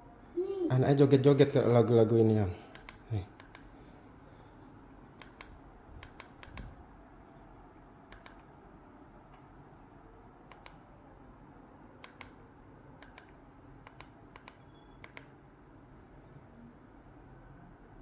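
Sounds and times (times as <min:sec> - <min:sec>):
low room hum: 0:00.0 - 0:18.0
remote control buttons clicking: 0:02.7 - 0:03.8, 0:05.1 - 0:06.8, 0:08.0 - 0:08.6, 0:10.4 - 0:10.9, 0:12.0 - 0:12.4, 0:13.0 - 0:15.4.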